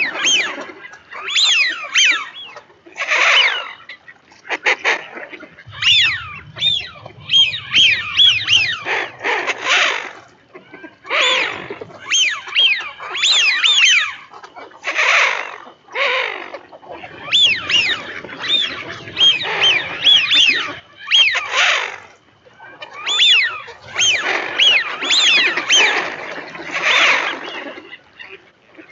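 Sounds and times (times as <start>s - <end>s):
ducks whistling calls: 0.0s - 28.9s
harsh noisy bird calls: 4.7s - 22.1s, 22.7s - 28.4s.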